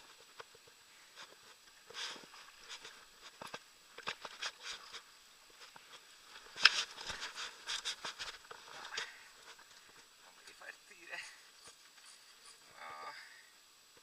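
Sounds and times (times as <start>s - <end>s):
light clicks and rustles: 0.0s - 10.6s.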